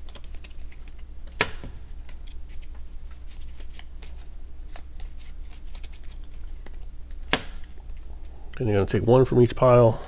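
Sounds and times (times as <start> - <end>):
cards being shuffled: 0.0 - 8.4
sharp card snap: 7.3 - 7.7.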